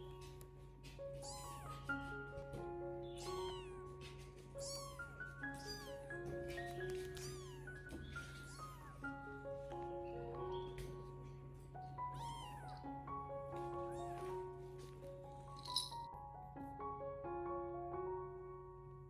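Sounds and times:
soft background music: 0:00.0 - 0:19.0.

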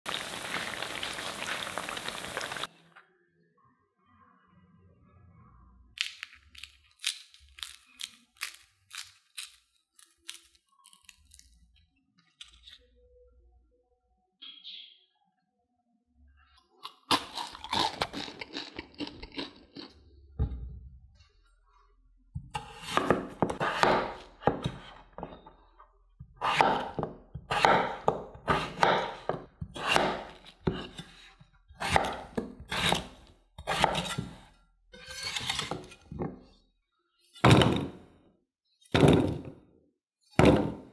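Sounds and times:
blade cutting raw potato: 0:22.6 - 0:25.0, 0:26.3 - 0:31.2, 0:31.8 - 0:36.1.

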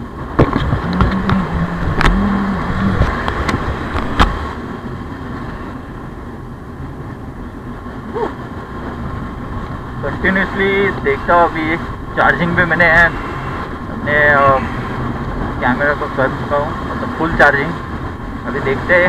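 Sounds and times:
steady low drone: 0:00.0 - 0:17.2
road noise: 0:00.0 - 0:19.0
motorcycle engine running: 0:00.4 - 0:04.4.

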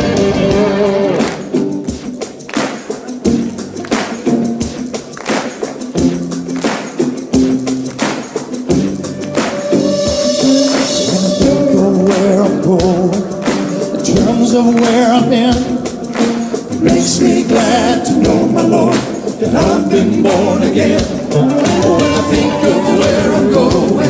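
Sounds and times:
rock song with singing: 0:00.0 - 0:01.9, 0:08.0 - 0:24.0.

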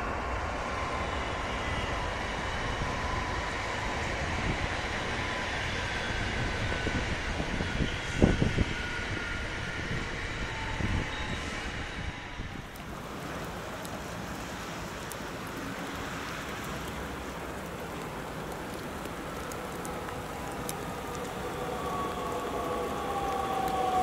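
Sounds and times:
electric train drive whine: 0:00.0 - 0:24.0
rain-like hiss: 0:12.5 - 0:24.0
faint ticks: 0:12.7 - 0:24.0.

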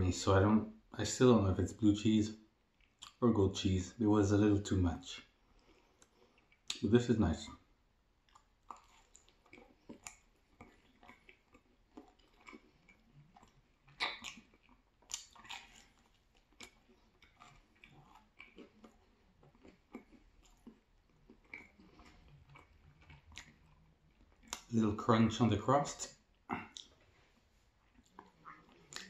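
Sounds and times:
chewing and biting pizza: 0:08.2 - 0:24.8, 0:26.1 - 0:29.0
wet mouth clicks: 0:13.8 - 0:15.7, 0:24.4 - 0:24.7, 0:26.5 - 0:27.0, 0:27.9 - 0:29.0.

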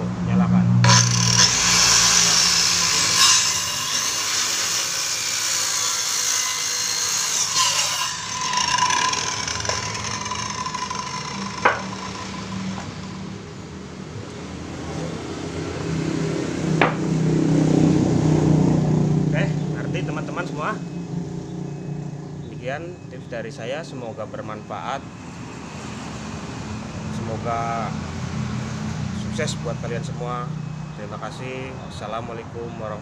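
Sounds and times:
saw blade spinning down: 0:00.8 - 0:13.4
circular saw cutting wood: 0:00.8 - 0:13.5.

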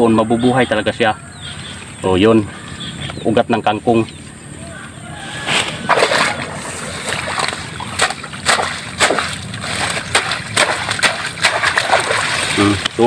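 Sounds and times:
leaves rustling: 0:05.2 - 0:13.0
splashes and squelches in mud: 0:05.7 - 0:13.0.

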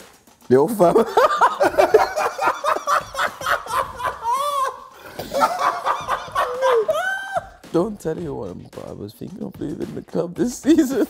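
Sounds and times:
men laughing: 0:00.7 - 0:07.6, 0:10.6 - 0:11.0.

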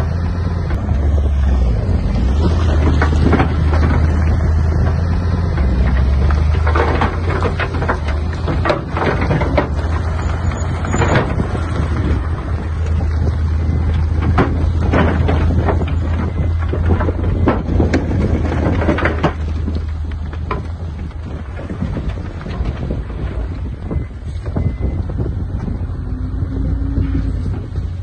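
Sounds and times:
diesel engine running: 0:00.0 - 0:28.0
stone and rubble clattering: 0:05.6 - 0:24.0.

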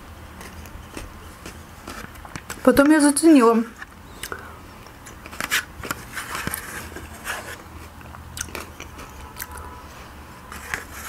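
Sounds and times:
wet chewing and sipping: 0:04.1 - 0:05.3, 0:07.8 - 0:09.8.

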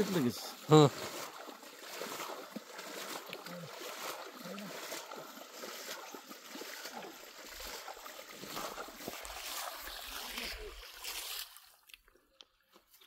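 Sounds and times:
water sloshing and splashing: 0:00.0 - 0:13.0.

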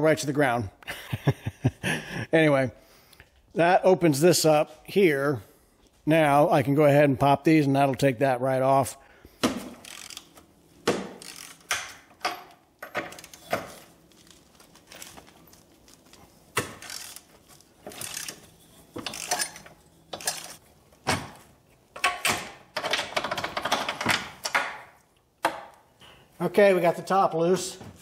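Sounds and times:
ratchet wrench clicking: 0:09.8 - 0:10.4, 0:11.1 - 0:12.5, 0:13.1 - 0:13.5, 0:16.8 - 0:17.3, 0:17.9 - 0:20.6.

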